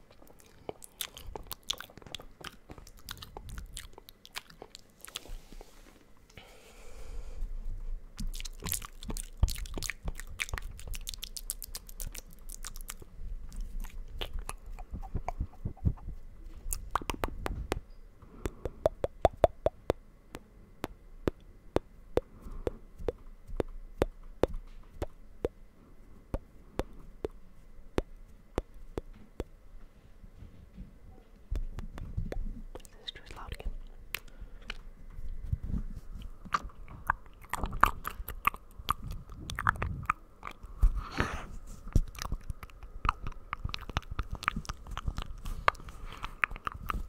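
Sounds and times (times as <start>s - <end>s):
wet mouth clicks and smacks: 0.2s - 5.7s, 8.2s - 16.1s, 16.7s - 17.8s, 18.4s - 25.6s, 26.3s - 27.4s, 28.0s - 29.5s, 31.6s - 34.9s, 36.2s - 40.8s, 41.9s - 47.0s.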